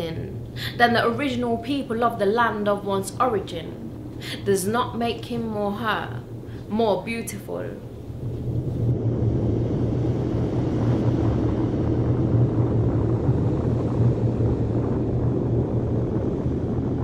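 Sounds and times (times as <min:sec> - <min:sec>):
low rumbling drone: 0:00.0 - 0:07.0, 0:07.7 - 0:17.0
rushing noise: 0:07.8 - 0:17.0.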